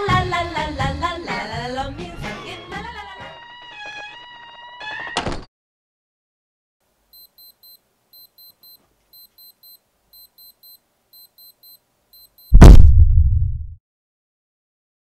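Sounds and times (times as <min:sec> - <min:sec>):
wristwatch alarm beeping: 0:07.2 - 0:12.6
loud thump with low rumble: 0:12.6 - 0:13.8.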